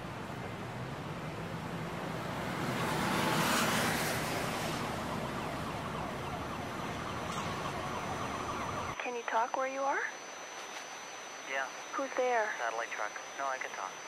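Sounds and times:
car passing by: 0.0 - 7.8
road traffic hiss: 0.0 - 8.9.

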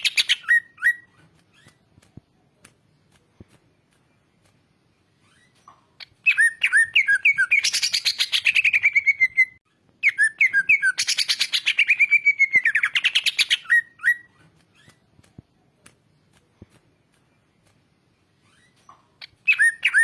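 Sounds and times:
bird singing whistles and trills: 0.0 - 1.8, 6.2 - 15.0, 18.5 - 20.0.

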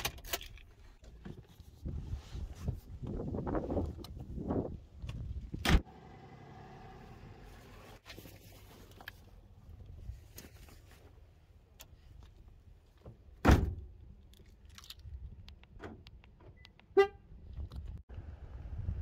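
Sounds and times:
clicks and gear handling: 0.0 - 1.6
car horn chirp: 16.9 - 17.2.

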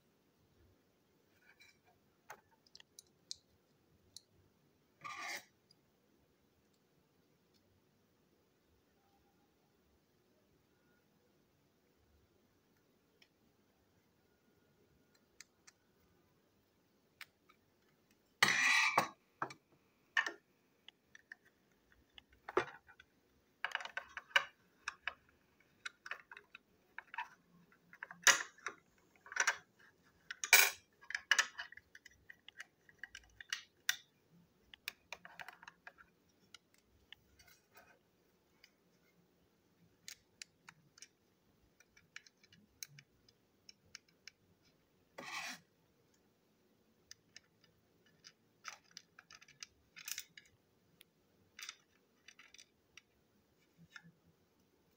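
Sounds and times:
small parts clicking and rattling: 1.5 - 4.4, 20.2 - 37.9, 39.8 - 44.5, 47.0 - 50.6, 51.4 - 53.2.

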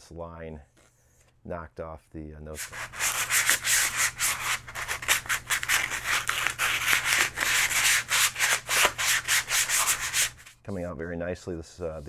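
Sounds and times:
sandpaper rubbing on plastic: 2.6 - 10.9.

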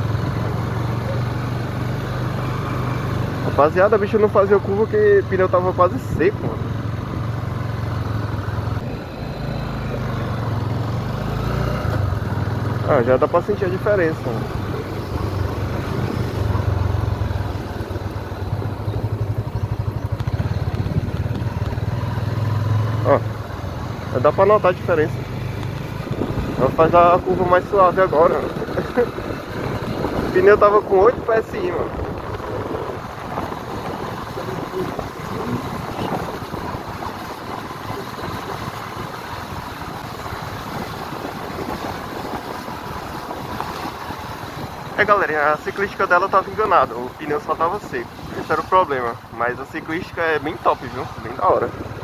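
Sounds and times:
motorcycle engine running at low revs: 0.0 - 52.0
wind rushing on microphone: 19.0 - 21.8, 25.6 - 45.2.

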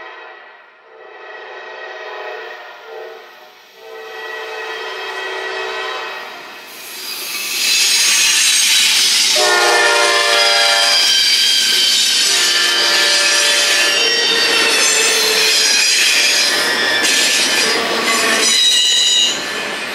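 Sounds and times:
locomotive horn blasts: 0.8 - 6.4, 9.3 - 11.1, 12.3 - 14.2
train wheels rushing on rails: 1.4 - 19.9.

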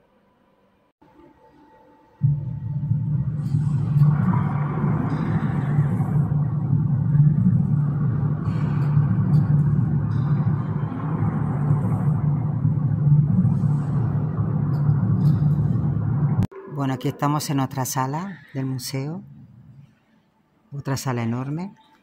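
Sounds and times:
low rumbling drone: 1.1 - 19.9.

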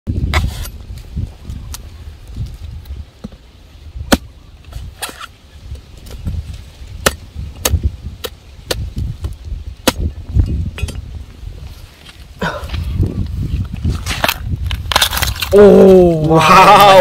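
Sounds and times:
machete chopping coconut husk: 4.0 - 4.3, 6.9 - 10.2.

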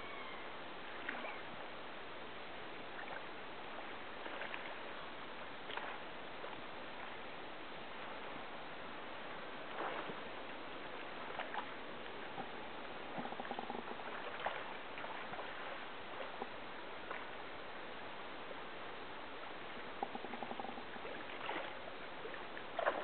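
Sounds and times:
knocks and splashes: 4.2 - 4.8, 5.7 - 6.0, 9.7 - 10.3, 11.2 - 17.3, 20.0 - 23.0.

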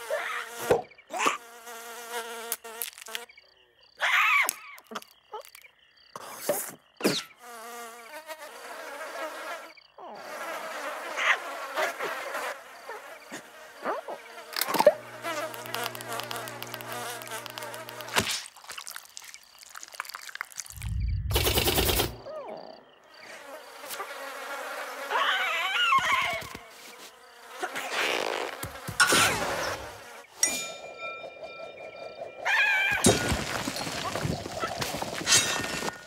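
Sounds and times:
cartoon firefly buzzing: 10.3 - 18.5, 23.2 - 30.3.

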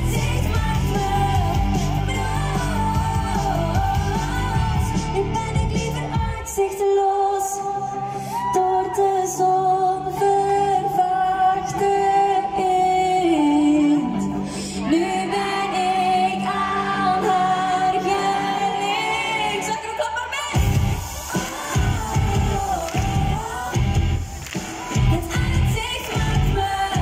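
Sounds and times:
woman singing into microphone: 0.0 - 24.2, 25.0 - 27.0
amplified pop music: 0.0 - 27.0.

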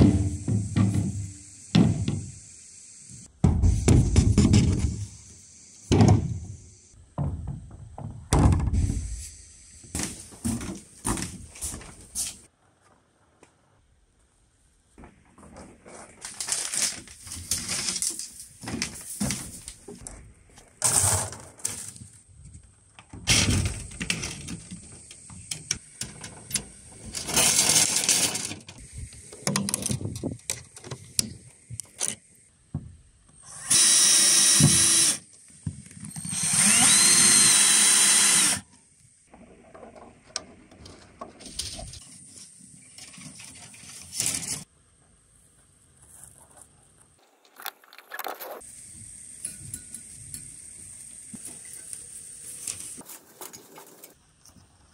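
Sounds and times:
cordless drill whining: 33.4 - 35.2, 36.0 - 38.6.

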